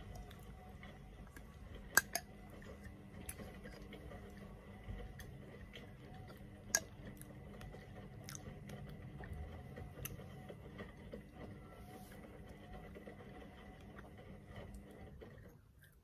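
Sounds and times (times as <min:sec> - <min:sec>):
person chewing: 0:06.2 - 0:09.3.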